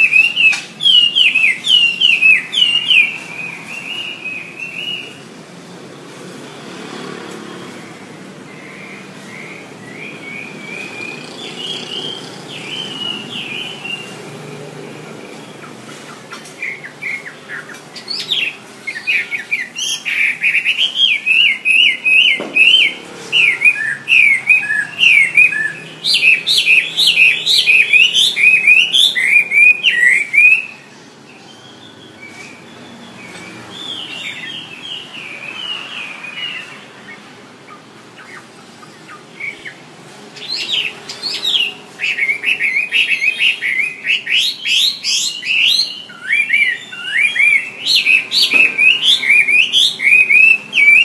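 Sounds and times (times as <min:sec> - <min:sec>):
bird singing whistled notes: 0:00.0 - 0:05.2, 0:08.5 - 0:14.2, 0:16.6 - 0:37.3, 0:40.4 - 0:51.0.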